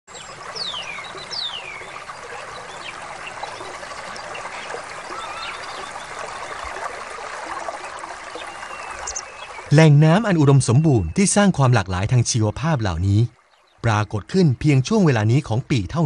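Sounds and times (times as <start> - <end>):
stream water running: 0.1 - 16.0
birds whistling and chirping: 4.6 - 6.0, 8.4 - 9.7.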